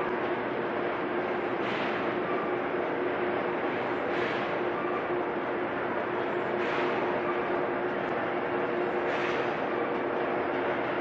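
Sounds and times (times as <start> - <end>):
machine drone: 0.0 - 11.0
machine hiss: 1.6 - 2.1, 4.0 - 4.6, 6.4 - 7.2, 8.9 - 9.6.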